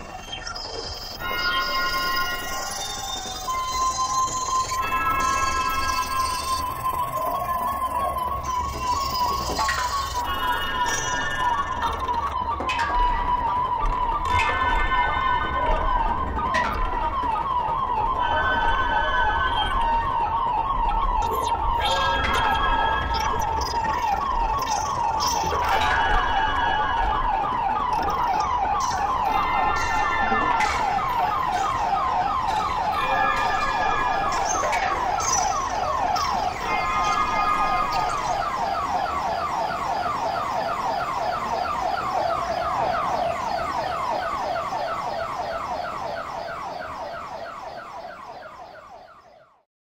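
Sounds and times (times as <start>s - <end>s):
warbling falling chirps: 21.2s - 27.0s, 27.7s - 49.0s.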